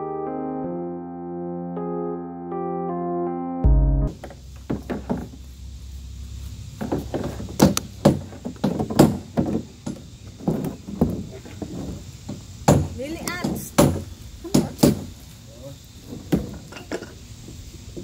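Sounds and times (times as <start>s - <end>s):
plastic panels knocking and clattering: 6.8s - 14.0s.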